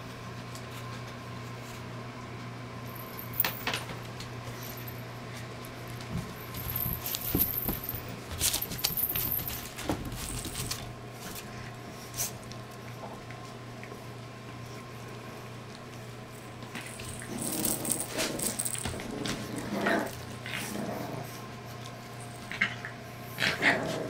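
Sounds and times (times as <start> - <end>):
steady low hum: 0.0 - 24.0
ribbons rustling and crackling: 6.4 - 10.9, 16.7 - 20.4.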